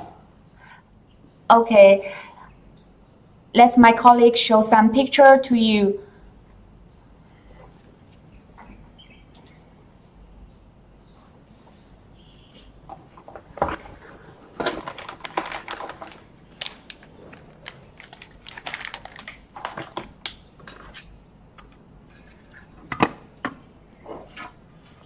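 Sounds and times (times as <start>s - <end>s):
clicks and crinkling of wrappers: 13.5s - 21.0s.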